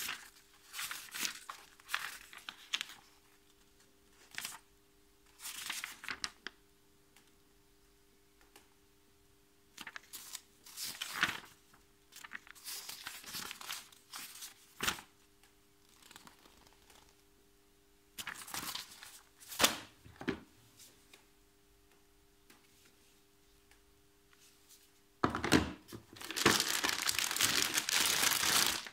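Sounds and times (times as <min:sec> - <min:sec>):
paper pages rustling: 0:00.0 - 0:04.6, 0:05.3 - 0:06.5, 0:09.8 - 0:15.1, 0:15.8 - 0:17.2, 0:18.2 - 0:21.0, 0:25.9 - 0:28.9.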